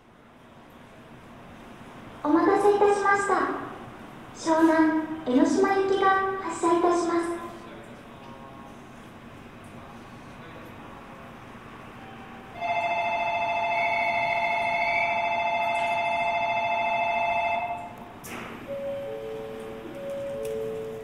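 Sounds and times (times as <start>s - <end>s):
departure bell ringing: 12.0s - 21.0s
two-note chime: 18.7s - 21.0s.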